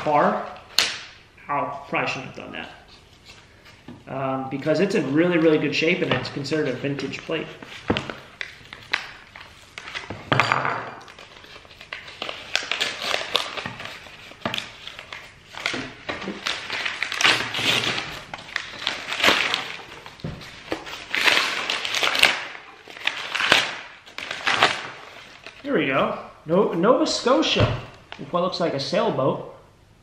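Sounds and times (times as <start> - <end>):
paper tearing and crumpling: 11.1 - 25.6.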